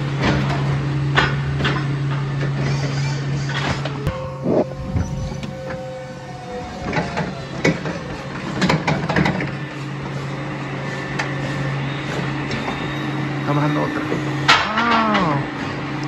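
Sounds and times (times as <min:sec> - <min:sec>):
electric lift truck humming: 0:00.0 - 0:16.0
clunks and rattles: 0:06.6 - 0:10.2.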